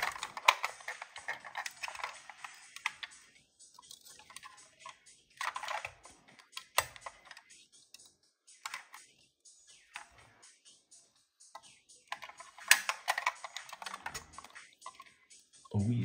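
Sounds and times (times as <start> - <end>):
model car parts clicking: 0.0 - 9.1, 11.5 - 15.1.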